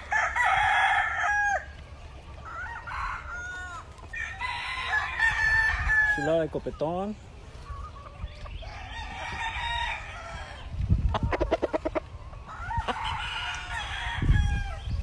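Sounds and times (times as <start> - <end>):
rooster crowing: 0.0 - 1.7, 2.4 - 6.4, 8.6 - 10.6, 12.5 - 14.9.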